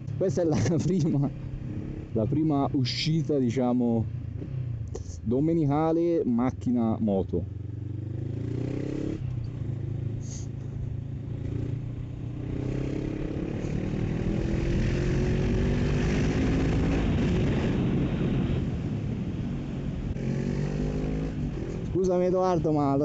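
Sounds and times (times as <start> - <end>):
motorcycle engine accelerating: 0.0 - 2.6, 7.5 - 22.6
wind noise: 14.0 - 20.5.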